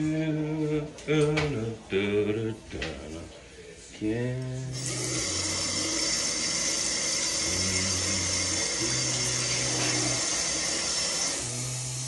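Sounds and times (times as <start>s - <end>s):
running water: 4.8s - 12.0s.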